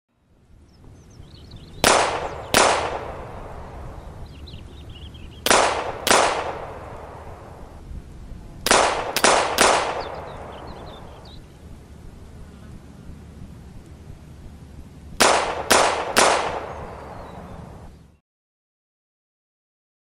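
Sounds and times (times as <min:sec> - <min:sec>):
pistol shots with echo: 0:01.8 - 0:03.9, 0:05.4 - 0:07.7, 0:08.6 - 0:11.3, 0:15.2 - 0:17.4.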